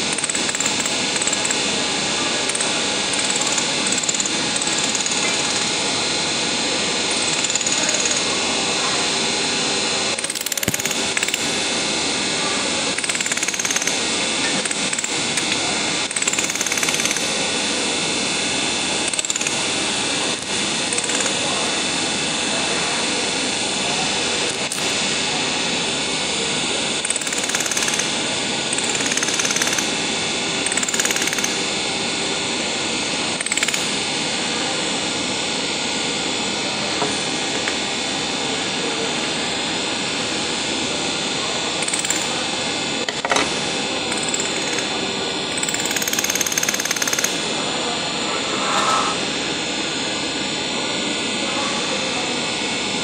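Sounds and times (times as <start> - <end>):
workshop machinery running: 0.0 - 53.0.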